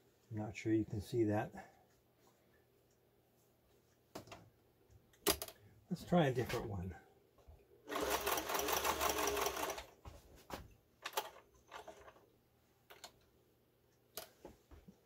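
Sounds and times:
sewing machine stitching: 0:07.9 - 0:09.9.

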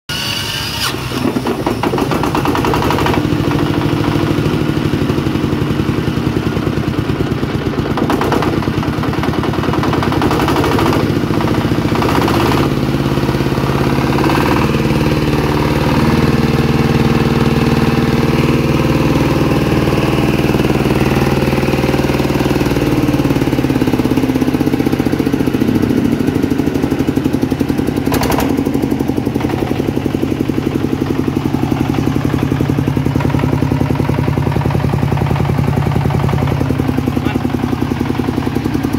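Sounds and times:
diesel engine chugging: 0:00.1 - 0:38.9
sharp engine knocks: 0:01.1 - 0:04.2, 0:07.8 - 0:12.8, 0:28.0 - 0:29.8.

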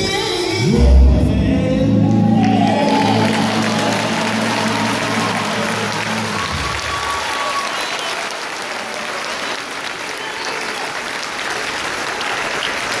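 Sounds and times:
audience applauding: 0:02.1 - 0:13.0.

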